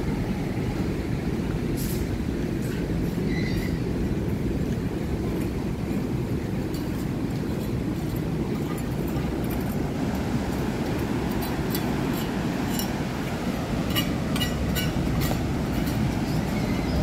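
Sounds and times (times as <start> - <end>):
ocean surf breaking: 3.8 - 17.0.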